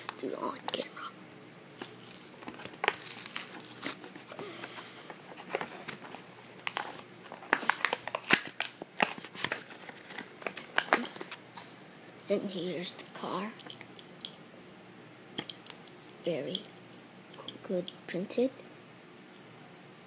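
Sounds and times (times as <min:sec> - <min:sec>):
cardboard tearing: 0:01.8 - 0:04.3
plastic blister crinkling: 0:01.8 - 0:11.4.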